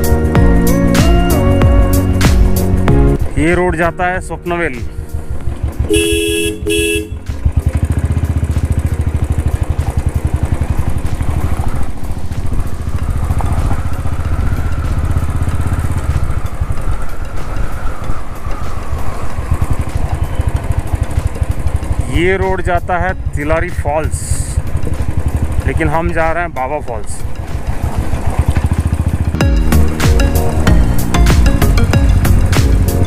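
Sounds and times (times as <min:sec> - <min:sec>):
motorcycle engine running: 0:00.0 - 0:33.0
vehicle horn tooting: 0:05.8 - 0:07.6.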